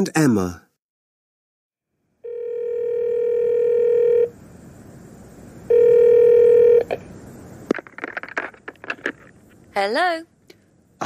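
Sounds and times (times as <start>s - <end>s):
telephone ringing: 2.2s - 4.3s, 5.7s - 6.9s.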